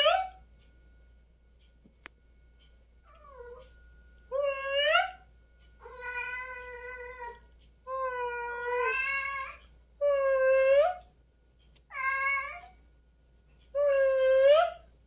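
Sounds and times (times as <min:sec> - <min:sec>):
cat meowing: 0:05.8 - 0:07.4, 0:08.1 - 0:09.6, 0:11.9 - 0:12.7.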